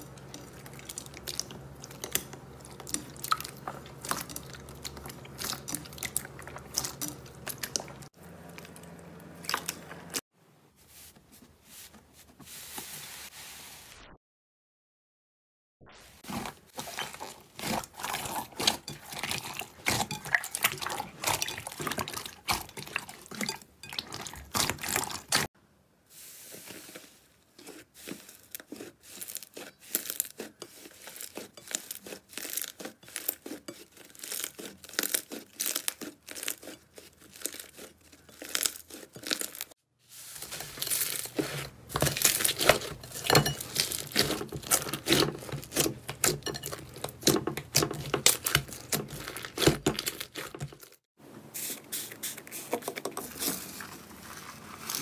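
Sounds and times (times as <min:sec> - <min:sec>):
slime crackling and popping: 0:28.4 - 0:39.7.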